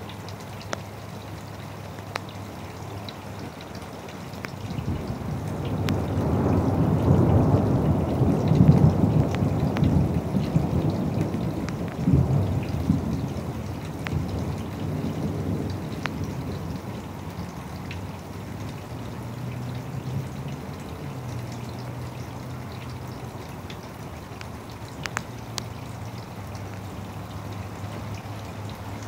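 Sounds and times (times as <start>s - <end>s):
steady rainfall: 0.0s - 29.0s
water drips: 0.0s - 29.0s
thunder rumbling: 4.6s - 21.6s.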